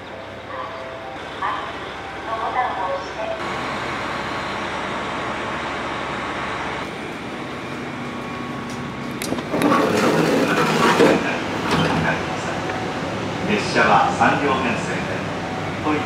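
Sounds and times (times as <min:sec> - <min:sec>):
electric train humming: 0:00.0 - 0:16.0
train door opening with clicks: 0:08.3 - 0:12.9.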